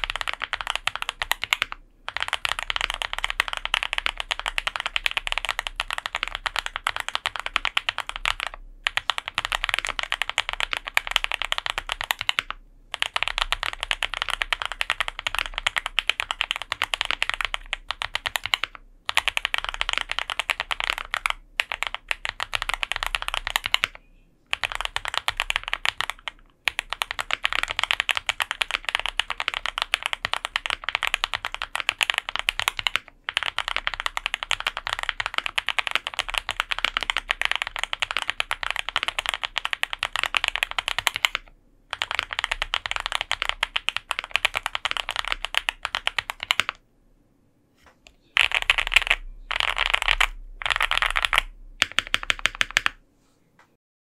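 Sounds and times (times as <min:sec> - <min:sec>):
mechanical keyboard typing: 0:00.0 - 0:46.8, 0:48.3 - 0:53.0.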